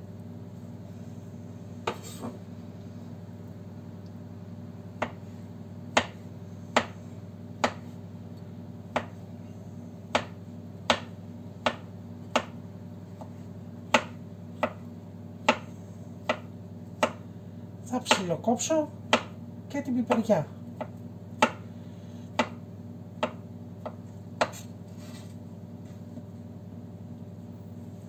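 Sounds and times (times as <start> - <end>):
knife chopping on wooden board: 1.8 - 2.4, 5.0 - 5.3, 5.9 - 7.0, 7.6 - 8.0, 8.9 - 9.2, 10.1 - 17.2, 19.1 - 19.4, 20.1 - 21.7, 22.3 - 22.6, 23.2 - 24.7.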